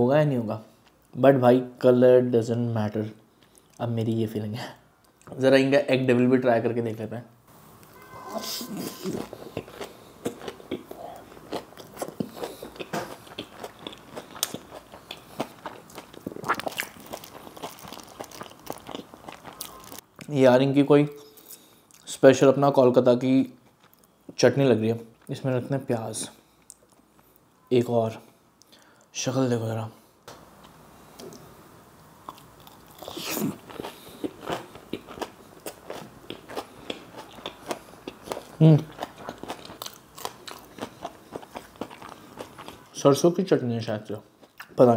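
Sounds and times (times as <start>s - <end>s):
crunchy chewing: 9.1s - 20.0s, 32.2s - 42.9s.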